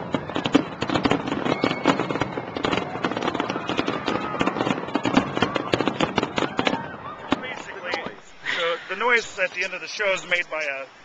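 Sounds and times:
firework shells bursting: 0:00.0 - 0:08.3.

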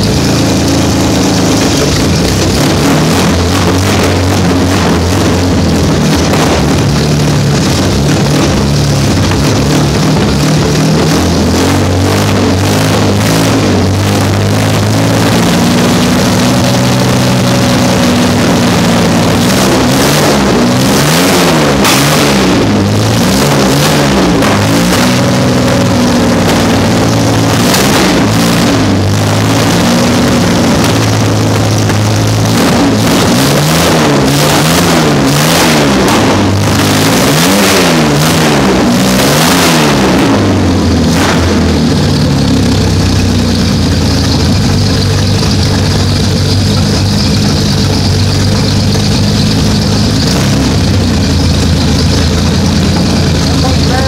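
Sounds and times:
engine revving: 0:00.0 - 0:54.0.

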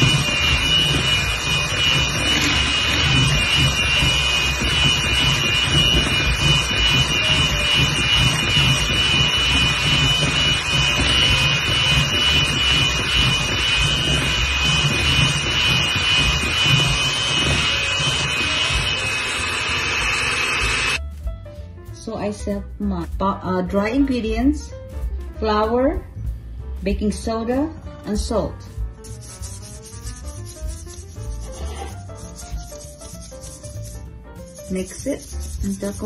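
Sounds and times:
electric mixer whining: 0:00.0 - 0:21.0, 0:34.6 - 0:36.0.

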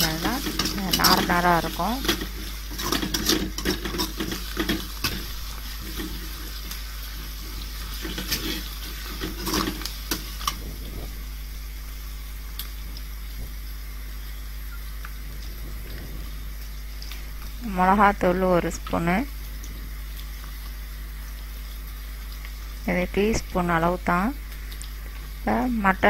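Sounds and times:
oil sizzling: 0:00.0 - 0:26.0
metal ladle scraping a pan: 0:02.0 - 0:10.6.

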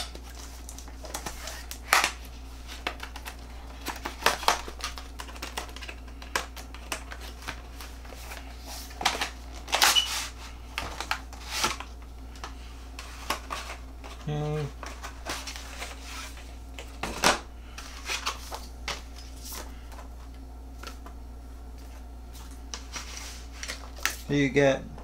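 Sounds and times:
packaging clicks and rustles: 0:00.0 - 0:20.1
steady low hum: 0:00.0 - 0:25.0.

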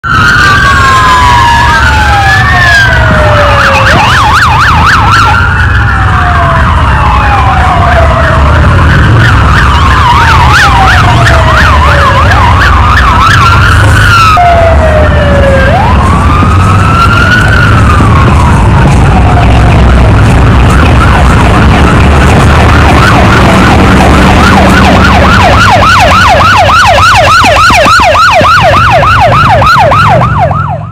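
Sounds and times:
police sirens wailing and yelping: 0:00.0 - 0:30.9
steady low rumble: 0:14.8 - 0:25.6.

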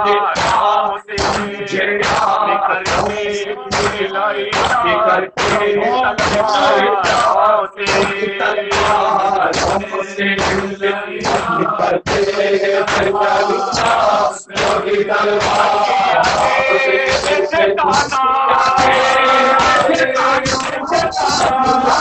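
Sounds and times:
lead voice on microphone: 0:00.0 - 0:22.0
men chanting lament: 0:00.0 - 0:22.0
rhythmic chest-beating: 0:00.0 - 0:22.0.

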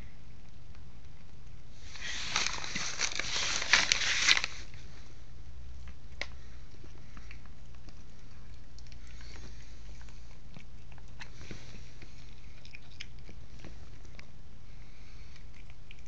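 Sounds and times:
steady low hum: 0:00.0 - 0:16.0
cat chewing wet smacking: 0:05.8 - 0:16.0.

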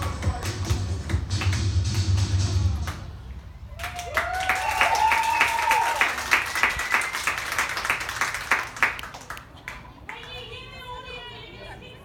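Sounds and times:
small crowd clapping: 0:00.0 - 0:03.1, 0:03.7 - 0:10.4
whoops and cheers: 0:03.7 - 0:07.4.

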